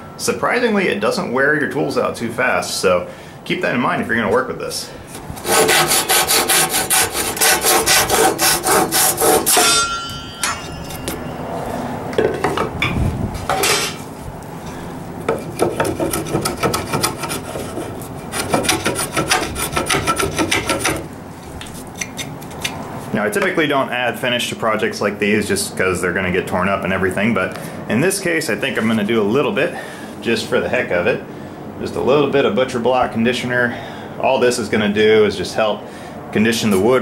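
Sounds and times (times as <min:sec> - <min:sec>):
hand saw cutting wood: 0:05.4 - 0:09.8, 0:15.3 - 0:21.1
saw blade metallic ring: 0:09.4 - 0:12.0.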